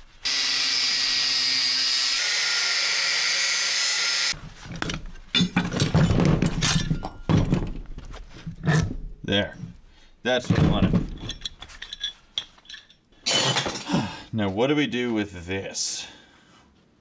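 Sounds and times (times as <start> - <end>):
handheld power tool running: 0.2 - 4.4
metal parts knocking and clanking: 4.7 - 8.9, 10.4 - 13.9.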